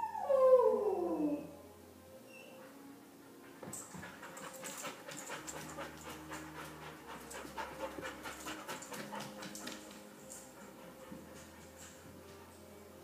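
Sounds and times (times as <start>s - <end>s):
dog panting rapidly: 3.4s - 12.5s.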